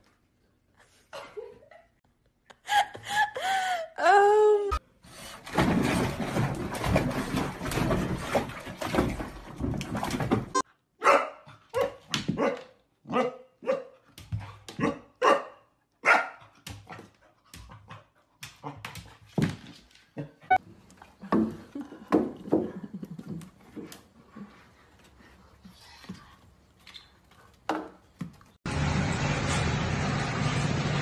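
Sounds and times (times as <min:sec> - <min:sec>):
puppy splashing in water: 0:05.3 - 0:10.6.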